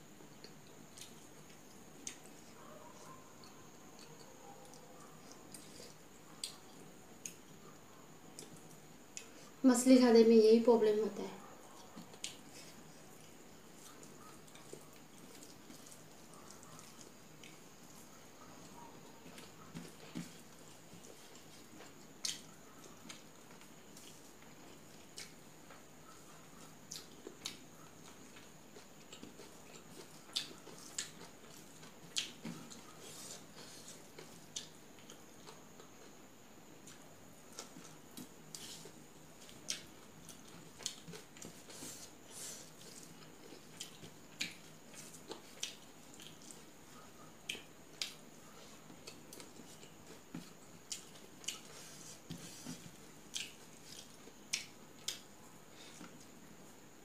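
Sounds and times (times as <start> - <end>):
chewing mouth clicks and smacks: 11.8 - 17.6, 26.9 - 33.0, 39.4 - 41.6, 42.8 - 46.7, 47.4 - 48.2, 53.3 - 55.3.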